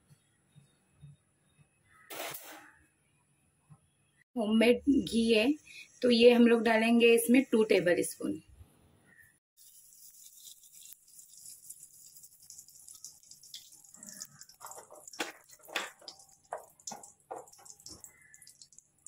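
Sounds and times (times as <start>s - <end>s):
melting fat crackling and popping: 10.0s - 19.0s.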